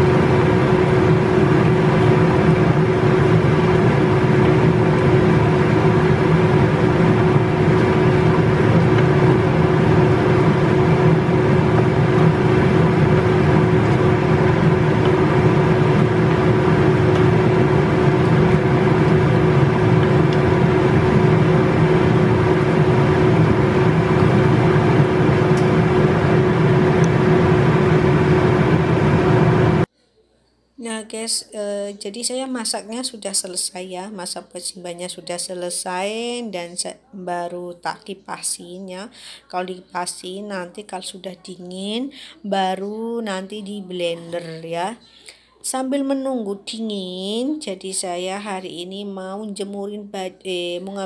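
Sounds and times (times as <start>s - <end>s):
extractor fan whirring: 0.0s - 29.9s.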